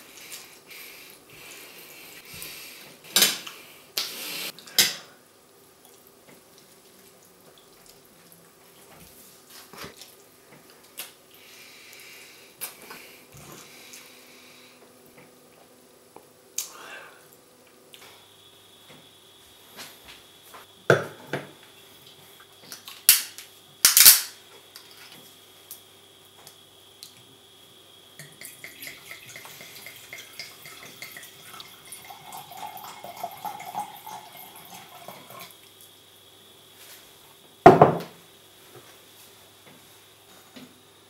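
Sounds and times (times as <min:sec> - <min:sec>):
wine pouring into glass: 0:28.2 - 0:35.5
bottle knocking on wooden table: 0:37.7 - 0:38.1.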